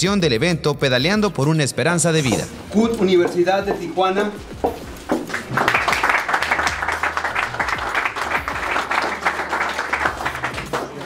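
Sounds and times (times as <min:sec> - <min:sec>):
audience clapping: 0:04.6 - 0:11.0.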